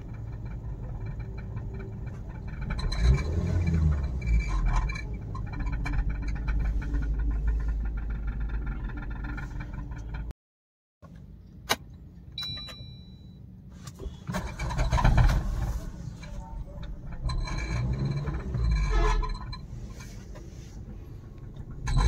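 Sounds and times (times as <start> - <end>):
car engine running: 0.0 - 10.3, 14.0 - 22.0
exhaust silencer rattling: 0.0 - 10.3, 14.3 - 22.0
short high beep: 12.4 - 13.4.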